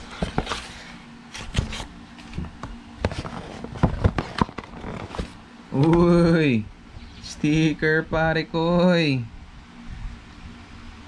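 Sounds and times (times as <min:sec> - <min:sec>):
cardboard packaging rustling: 0:00.0 - 0:05.4.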